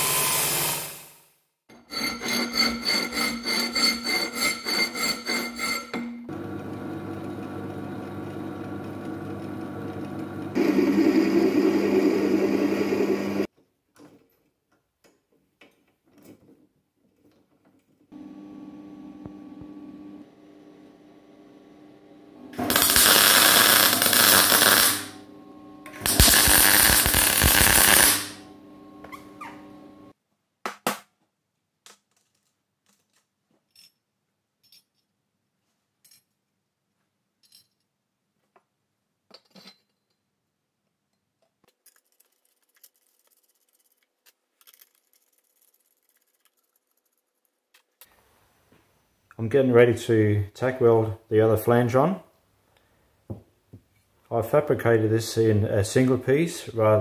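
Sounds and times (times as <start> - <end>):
welder hum: 6.3 - 13.5, 18.2 - 30.1
electric welding on steel: 22.5 - 30.1
small steel screws clicking: 41.7 - 48.1.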